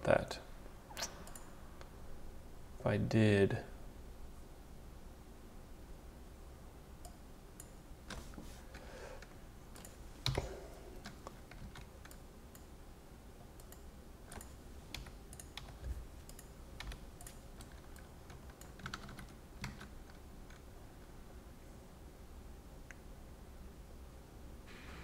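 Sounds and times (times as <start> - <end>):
keyboard and mouse clicking: 1.0 - 1.5, 9.7 - 12.7, 13.6 - 20.7.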